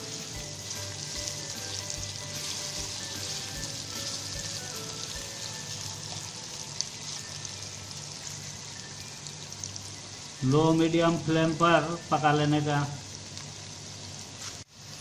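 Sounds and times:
potatoes sizzling in hot oil: 0.0 - 15.0.

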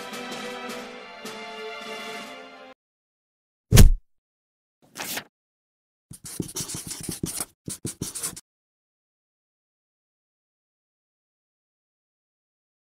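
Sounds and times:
background music: 0.0 - 2.8
short swish: 3.7 - 4.0
marker scratching on paper: 4.9 - 5.3, 6.1 - 8.4.

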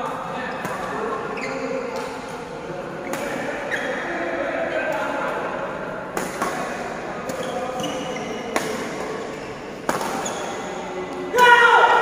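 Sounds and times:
shoes squeaking on court: 1.3 - 2.2, 3.1 - 4.2, 7.3 - 10.8
rackets hitting shuttlecock: 6.1 - 11.2.

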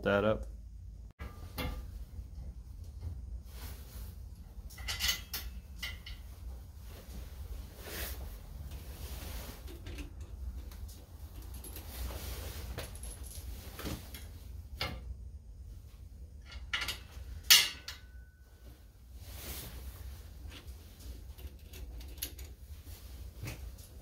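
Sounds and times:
low steady hum: 0.0 - 24.0
knocks and clanks of hand tools: 4.7 - 6.3.

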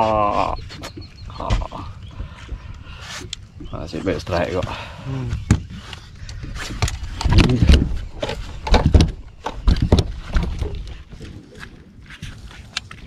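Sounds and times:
knocks and thumps on boat deck: 3.6 - 5.8, 6.7 - 11.3.

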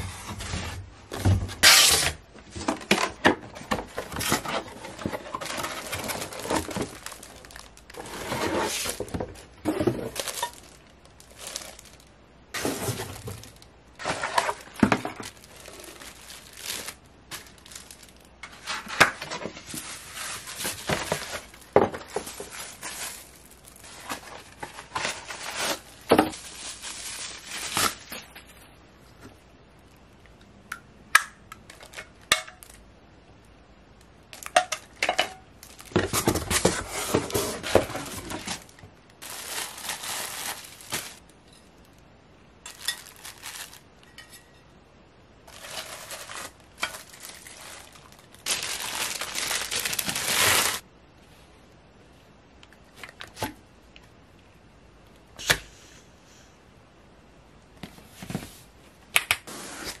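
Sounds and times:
packaging tearing and crinkling: 1.6 - 2.2, 3.8 - 28.4, 35.6 - 41.3, 42.7 - 43.9, 45.5 - 50.8.

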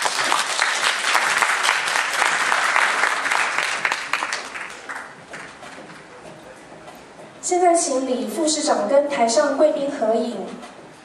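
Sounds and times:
crowd applauding: 0.0 - 6.1.

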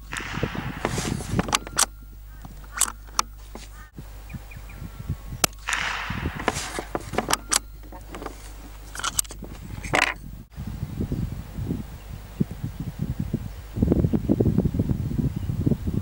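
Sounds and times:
rustling: 0.0 - 4.0, 5.3 - 10.4
small clicks: 0.1 - 3.9, 5.4 - 10.3
rifle shots: 5.4 - 10.0.

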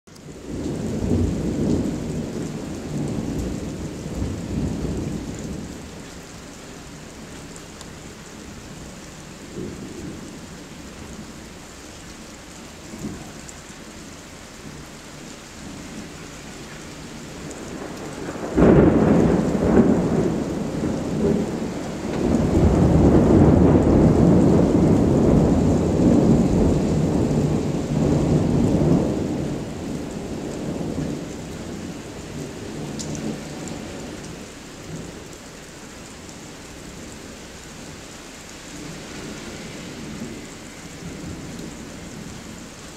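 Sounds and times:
steady rain: 0.1 - 42.9
thunder crack and rumble: 0.3 - 6.1, 8.0 - 11.3, 12.8 - 13.6, 15.6 - 35.3.

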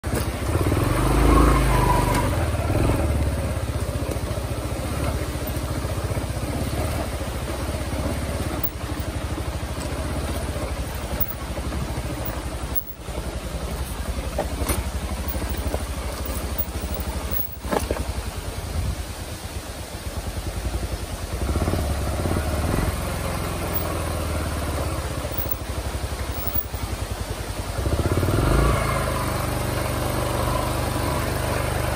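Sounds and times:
dirt bike engine running: 0.0 - 31.9.

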